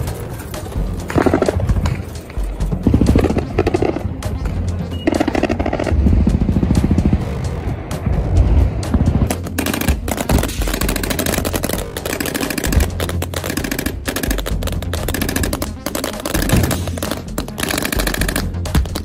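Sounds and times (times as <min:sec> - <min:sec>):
background music: 0:00.0 - 0:19.0
automatic rifle fire: 0:09.3 - 0:19.0.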